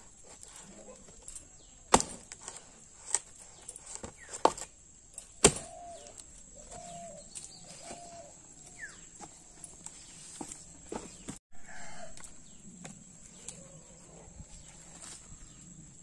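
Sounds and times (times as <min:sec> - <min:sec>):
axe chopping wood: 0:01.9 - 0:03.2, 0:05.4 - 0:06.0
bird chirping: 0:02.6 - 0:11.4
dove cooing: 0:05.5 - 0:09.0, 0:13.4 - 0:15.0.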